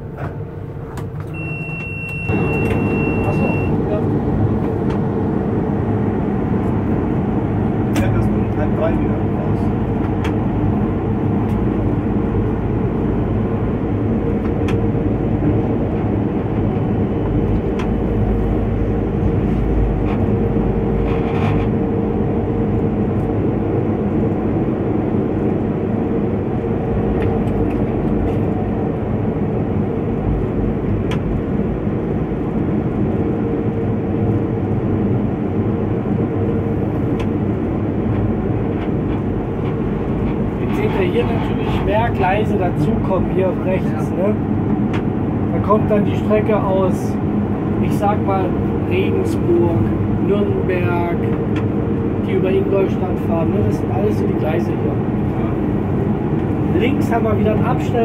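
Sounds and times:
steady hum: 0.0 - 58.0
train wheels rumbling on rails: 36.8 - 58.0.

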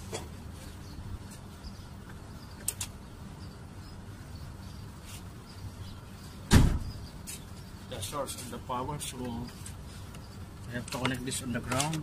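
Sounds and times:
steady low hum: 0.0 - 12.0
loud thump: 6.5 - 7.0.

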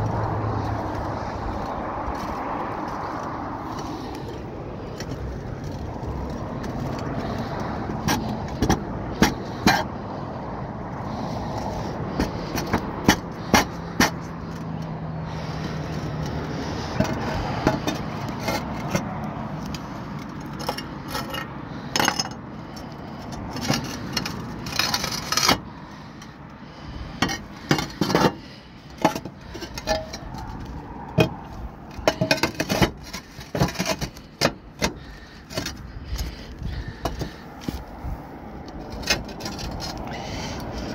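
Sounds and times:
roof tiles clacking and scraping: 0.0 - 10.1, 11.0 - 40.9.

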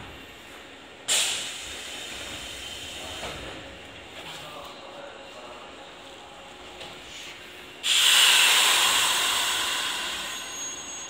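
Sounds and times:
train air brakes hissing: 1.1 - 3.4, 7.1 - 11.0.

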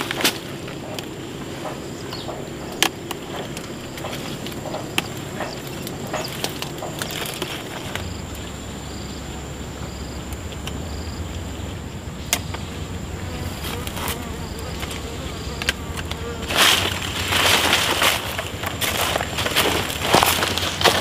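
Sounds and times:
high insect drone: 0.0 - 21.0
low insect buzz: 0.0 - 21.0
rustling: 13.3 - 21.0.

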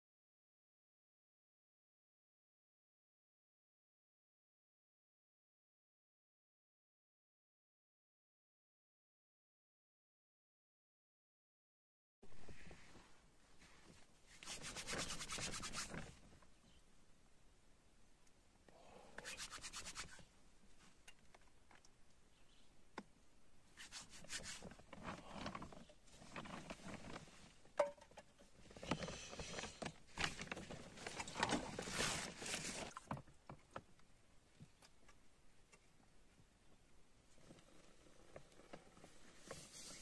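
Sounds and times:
camp gear rubbing and scraping: 12.4 - 16.2, 23.8 - 27.6, 28.5 - 33.0, 37.6 - 40.0.

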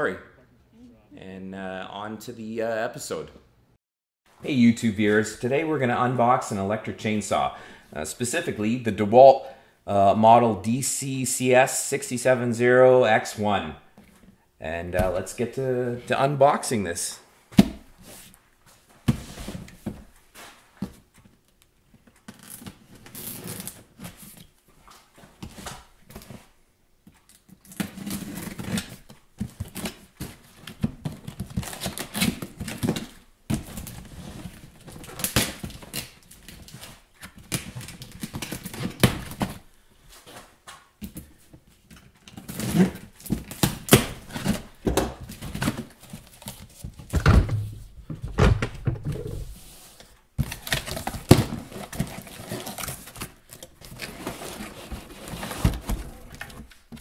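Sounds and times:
cardboard packaging rustling: 27.3 - 57.0.

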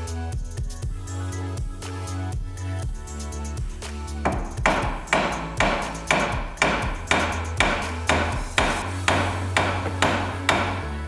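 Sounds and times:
hammer blows on steel: 4.2 - 11.0.

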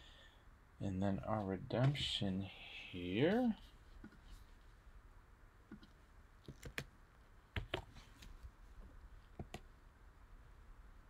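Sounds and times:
keyboard and mouse clicks: 5.7 - 6.9.

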